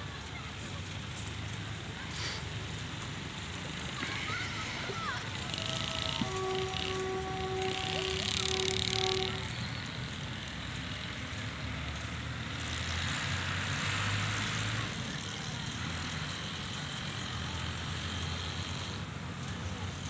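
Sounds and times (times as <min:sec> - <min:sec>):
distant locomotive rumble: 0:00.0 - 0:20.0
locomotive horn blast: 0:04.4 - 0:10.5.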